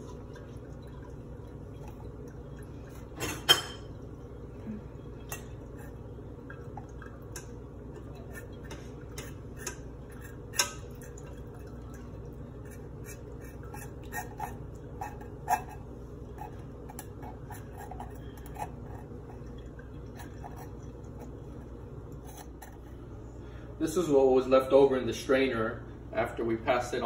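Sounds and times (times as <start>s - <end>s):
liquid dripping through strainer: 0.0s - 15.2s
steady low hum: 0.0s - 27.0s.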